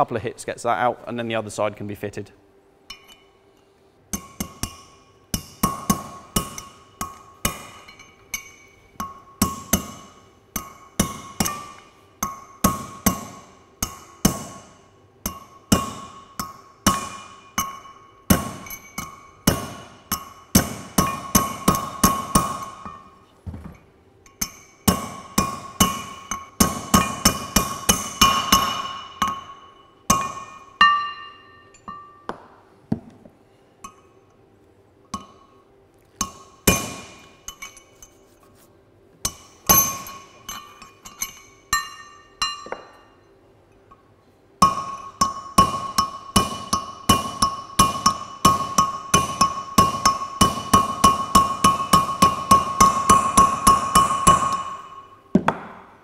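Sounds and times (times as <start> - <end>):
hammer striking metal drift: 4.2 - 23.2, 24.3 - 32.2, 36.2 - 37.8, 39.3 - 42.9, 44.6 - 55.8.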